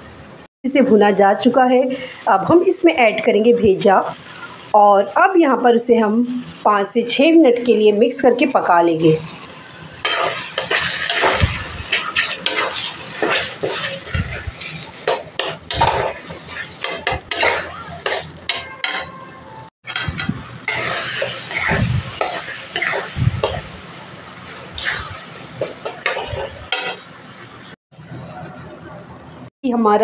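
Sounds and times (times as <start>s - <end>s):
low sizzle of frying: 0.0s - 30.0s
metal spatula scraping a pan: 10.0s - 23.8s, 24.7s - 27.2s.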